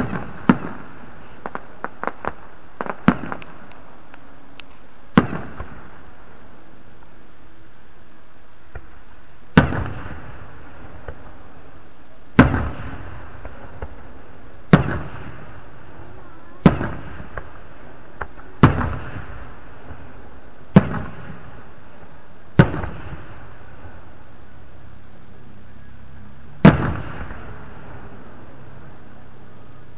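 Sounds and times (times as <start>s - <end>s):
fireworks booming with echo: 0.0s - 29.9s.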